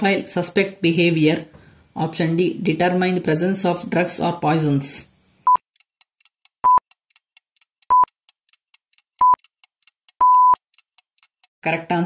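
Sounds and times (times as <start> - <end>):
faint rapid ticking: 5.5 - 11.5
short electronic beeps: 6.6 - 6.8, 9.2 - 9.4, 10.2 - 10.6
long final beep: 10.2 - 10.6.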